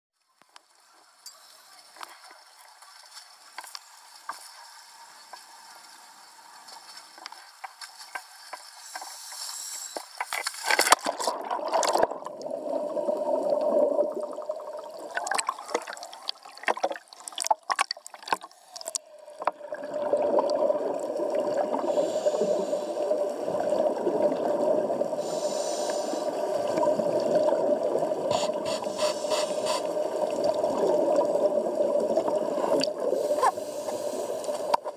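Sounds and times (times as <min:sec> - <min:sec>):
scuba regulator breaths hissing: 0:08.8 - 0:10.2, 0:21.7 - 0:23.4, 0:25.1 - 0:26.6, 0:28.3 - 0:30.2, 0:33.0 - 0:34.8
muffled underwater hum: 0:21.2 - 0:34.9.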